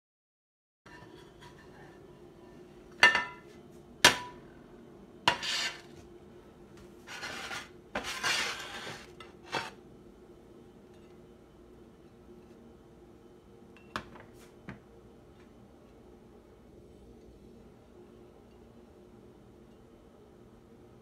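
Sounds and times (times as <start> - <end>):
spatula scraping plate: 0.9 - 2.1, 5.3 - 6.0, 7.0 - 9.8
pan clinking on ceramic plate: 3.0 - 3.5.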